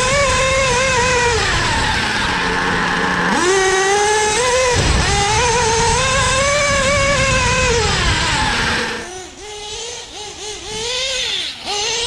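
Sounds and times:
model nitro engine revving: 0.0s - 12.0s.

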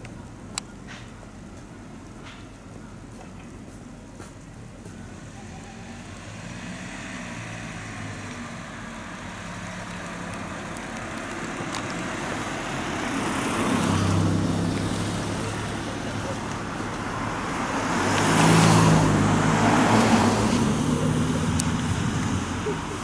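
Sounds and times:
car driving past: 5.3s - 10.7s, 11.7s - 23.0s.

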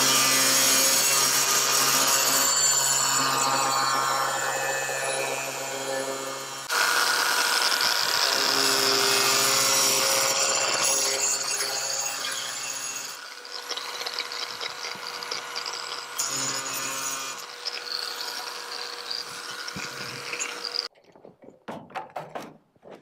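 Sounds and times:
grinder cutting plastic pipe: 0.0s - 20.9s
angle grinder motor whine: 1.4s - 20.9s.

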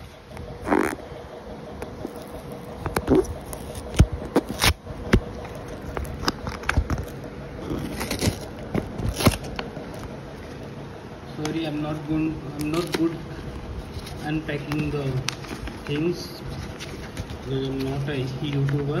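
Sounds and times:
paper envelope crackling: 1.8s - 10.6s, 12.6s - 18.9s.

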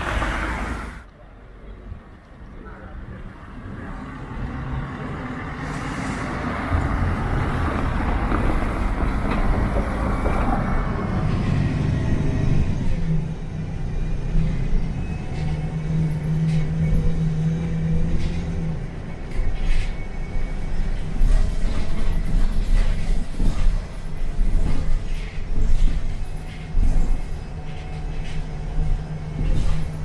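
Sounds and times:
bus driving past: 0.0s - 30.0s
bus engine drone inside: 0.0s - 30.0s.

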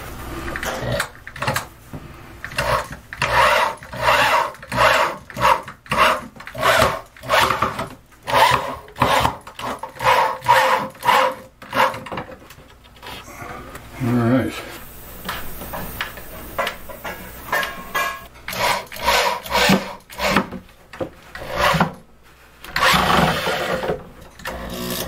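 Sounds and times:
power drill grinding into wood: 2.5s - 12.0s, 18.5s - 20.5s, 21.4s - 21.9s, 22.7s - 25.0s.

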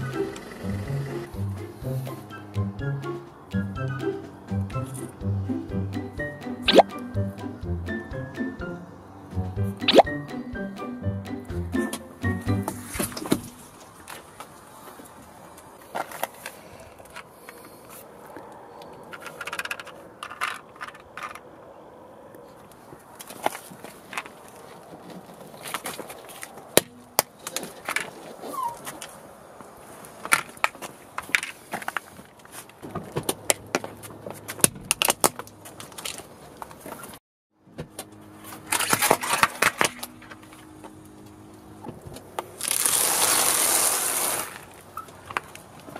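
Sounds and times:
plastic toy cracking under tyre: 19.1s - 21.5s, 34.4s - 36.3s, 38.6s - 40.2s, 42.4s - 45.7s
tyre crushing brittle object: 38.6s - 40.3s, 42.6s - 44.8s.

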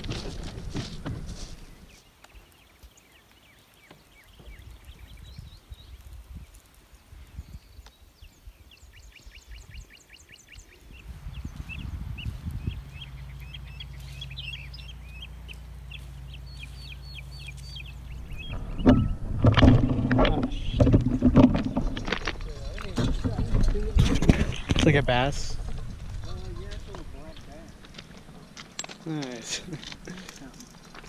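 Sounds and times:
small birds chirping: 1.5s - 19.3s, 20.2s - 31.0s
steady low hum: 11.0s - 21.8s.

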